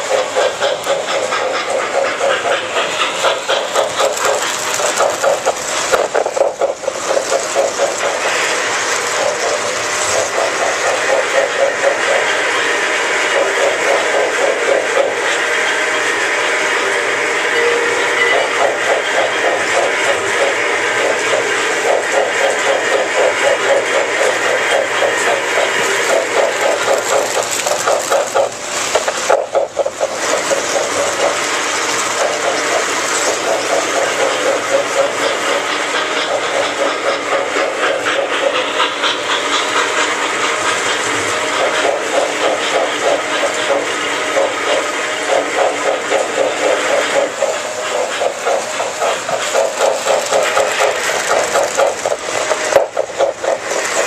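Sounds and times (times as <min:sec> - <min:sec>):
model steam locomotive chuffing: 0:00.0 - 0:54.0
toy train rumbling on track: 0:00.0 - 0:54.0.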